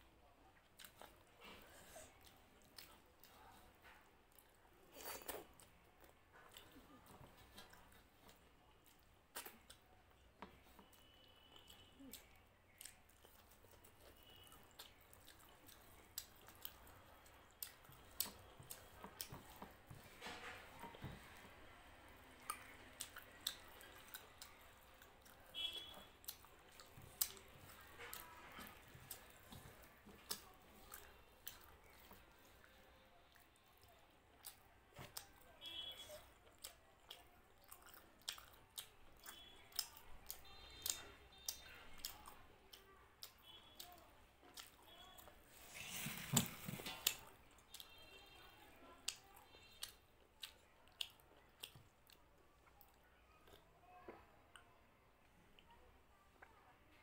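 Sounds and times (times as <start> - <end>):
close chewing with lip smacks: 0.4 - 21.6, 22.3 - 53.7.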